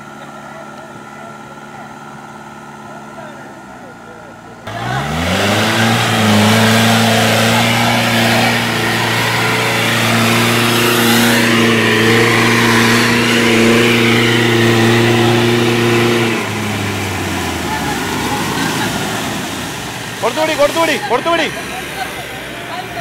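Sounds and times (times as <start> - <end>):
off-road vehicle engine revving: 0.0 - 23.0
muddy water splashing: 4.7 - 23.0.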